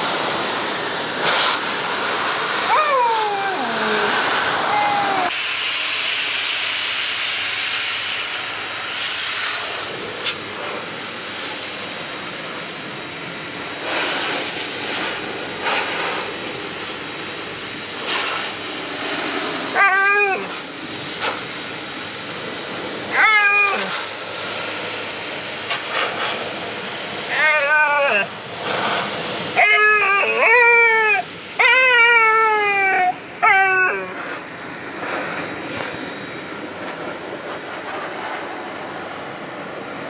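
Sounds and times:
steady hiss: 0.0s - 27.3s, 27.9s - 29.6s, 34.1s - 40.0s
puppy whining: 2.7s - 5.3s, 19.7s - 20.6s, 23.1s - 24.0s, 27.3s - 28.3s, 29.6s - 34.2s.

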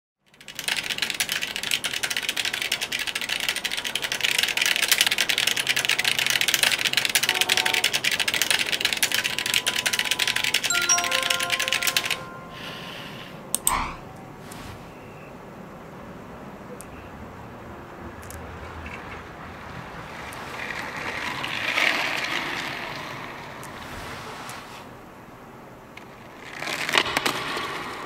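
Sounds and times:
typing on computer keyboard: 0.3s - 12.4s
short beeping tones: 9.4s - 13.0s
sharp click: 13.6s - 14.0s.

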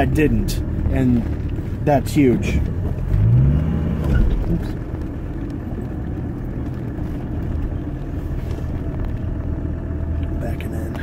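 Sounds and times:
car engine running at low speed: 0.0s - 11.0s.

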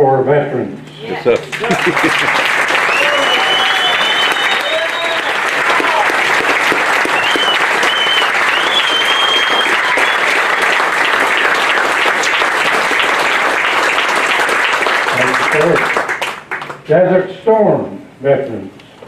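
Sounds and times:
crowd applauding: 1.2s - 16.9s
high whistles: 2.6s - 5.9s, 6.7s - 11.0s.

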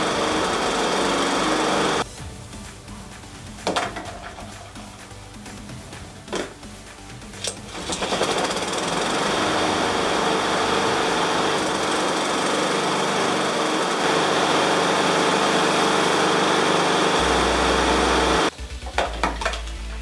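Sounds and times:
lawn mower engine running: 0.0s - 2.1s, 7.4s - 19.1s.

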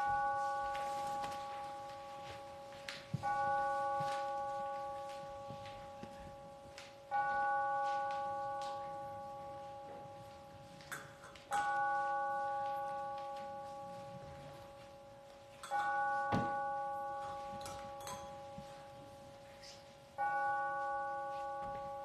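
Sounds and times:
bell ringing: 7.1s - 19.0s.

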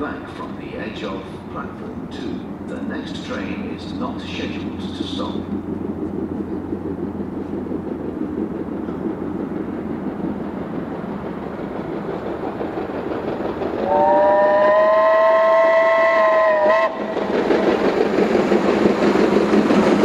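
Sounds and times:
train rumble: 0.0s - 20.0s
locomotive whistle chord: 13.8s - 17.0s.

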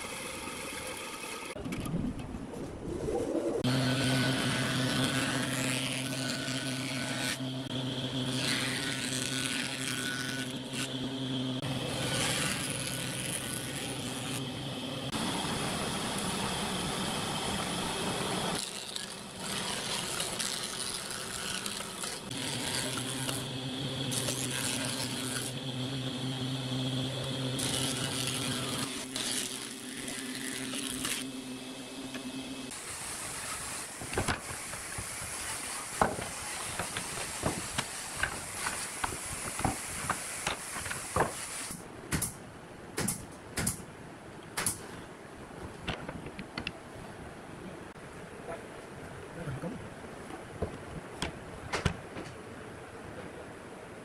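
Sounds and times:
rough wood cutting noise: 0.0s - 1.6s, 3.6s - 42.4s
planer motor hum: 3.6s - 32.7s.

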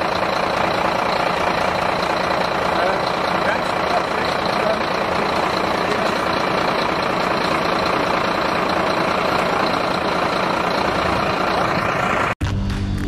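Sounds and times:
engine idling: 0.0s - 12.4s.

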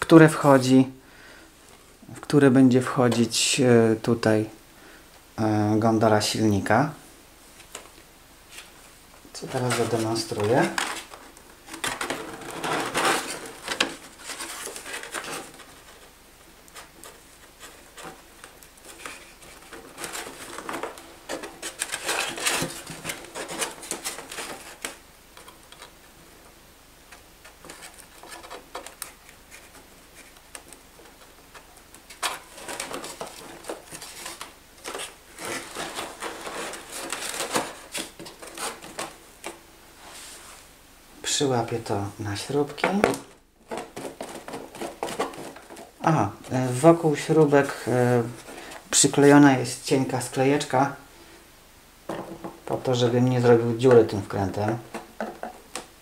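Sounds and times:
foam parts rubbing and scraping: 9.4s - 26.0s, 27.1s - 40.8s, 42.5s - 49.4s.

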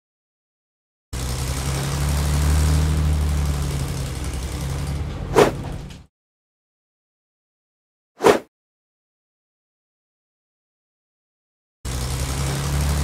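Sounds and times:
bulldozer diesel engine running: 1.2s - 6.1s, 11.9s - 13.0s.

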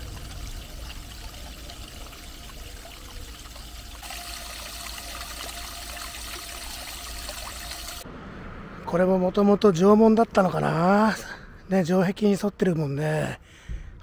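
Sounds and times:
fountain water splashing into basin: 0.0s - 8.0s.

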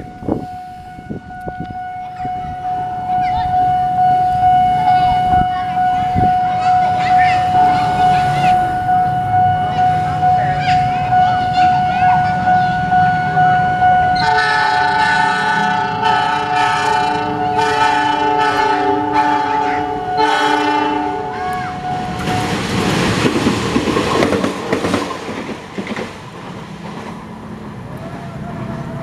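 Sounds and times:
steady high tone: 0.0s - 23.0s
train rumble and wheel clatter: 0.0s - 29.0s
locomotive horn blasts: 11.4s - 22.5s.

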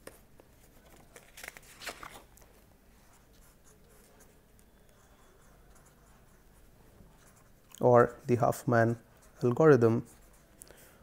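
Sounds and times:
pen scratching on paper: 3.1s - 7.6s, 8.9s - 10.6s.

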